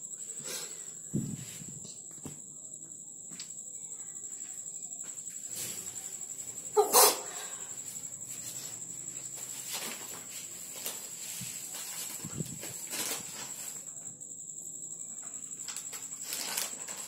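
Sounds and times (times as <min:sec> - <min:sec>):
crickets chirping: 0:00.0 - 0:17.0
dog barking: 0:06.8 - 0:07.3.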